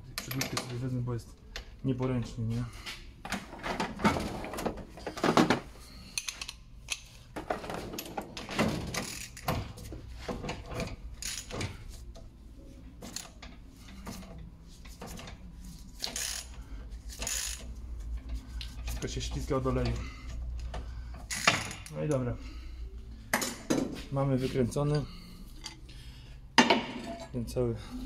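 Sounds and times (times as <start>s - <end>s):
ratchet clicking and clanking: 8.9s - 9.7s, 10.8s - 11.8s, 16.0s - 17.8s, 20.6s - 22.0s.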